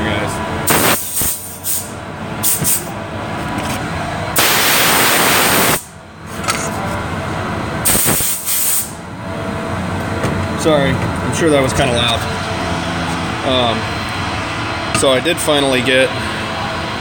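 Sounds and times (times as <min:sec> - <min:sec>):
air blow gun blasting: 0:00.7 - 0:02.9, 0:04.4 - 0:05.9, 0:07.8 - 0:09.0.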